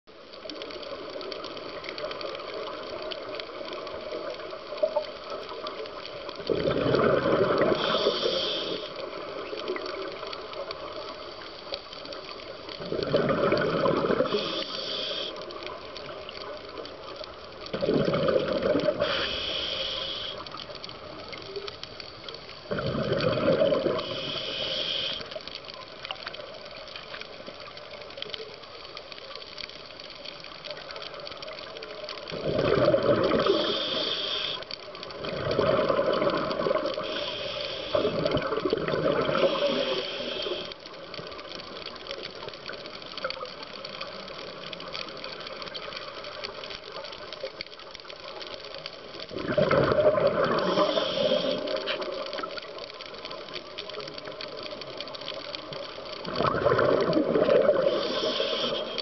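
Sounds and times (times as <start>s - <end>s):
regulator steady hiss: 0.1s - 59.0s
exhaled bubbles gushing: 6.4s - 8.2s, 12.8s - 14.7s, 17.7s - 19.2s, 22.7s - 24.5s, 32.3s - 34.0s, 35.1s - 37.2s, 37.9s - 40.7s, 49.3s - 52.6s, 56.2s - 58.8s.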